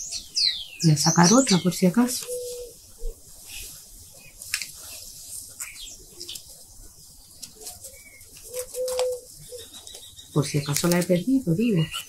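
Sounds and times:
dove cooing: 2.1 - 3.2, 7.6 - 10.0.

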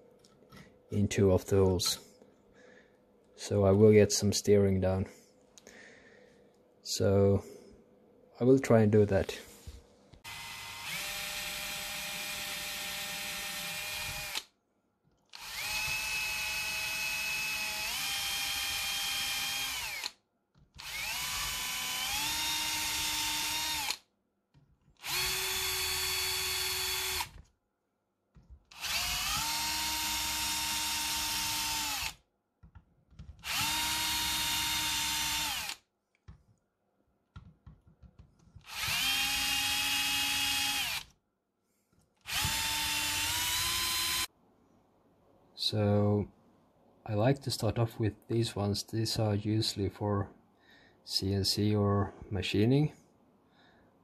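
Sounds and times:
cordless drill boring into metal: 10.3 - 14.4, 15.3 - 20.2, 20.8 - 24.0, 25.0 - 27.4, 28.7 - 32.2, 33.4 - 35.8, 38.6 - 41.1, 42.2 - 44.3.

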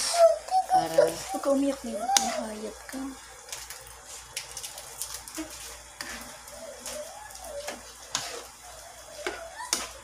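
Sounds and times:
metal spoon scraping a wok: 5.4 - 6.4, 7.7 - 8.6.

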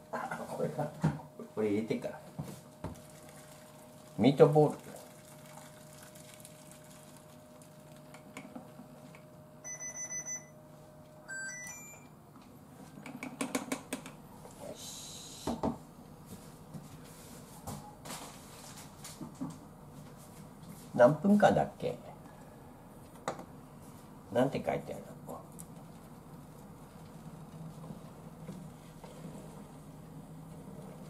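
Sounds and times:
cooktop control panel beeps: 9.6 - 10.6, 11.2 - 12.2.

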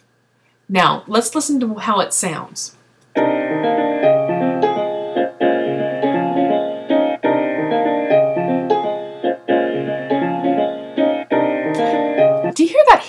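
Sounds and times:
looping piano music: 3.2 - 13.0.

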